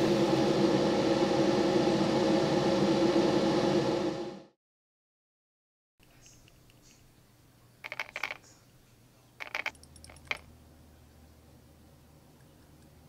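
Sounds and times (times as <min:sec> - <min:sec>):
small glass jars clinking: 0:07.8 - 0:08.5, 0:09.4 - 0:10.4.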